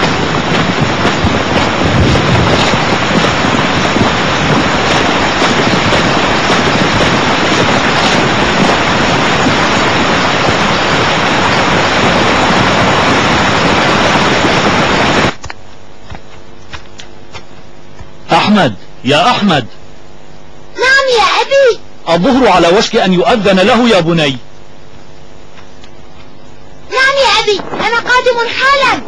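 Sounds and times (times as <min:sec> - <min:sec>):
wind rushing: 0:00.0 - 0:15.4, 0:27.0 - 0:29.0.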